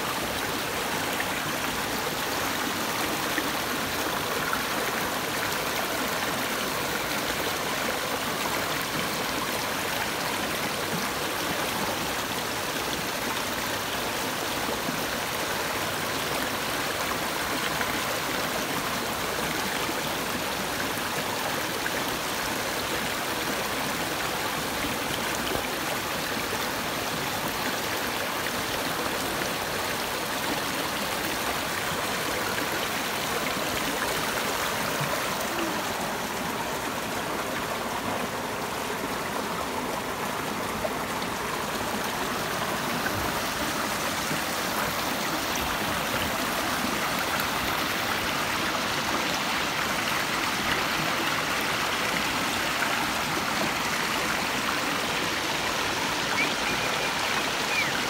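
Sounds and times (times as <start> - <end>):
stream water rushing over rocks: 0.0 - 58.0.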